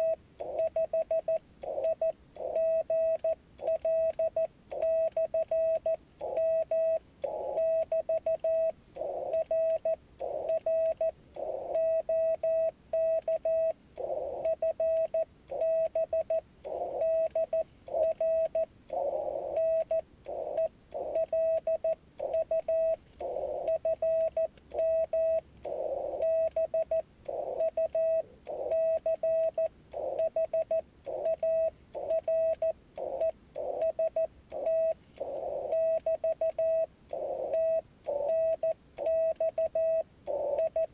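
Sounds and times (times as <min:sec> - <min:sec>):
morse code tone: 0:00.0 - 0:40.9
radio hiss: 0:25.6 - 0:26.3, 0:34.5 - 0:35.8.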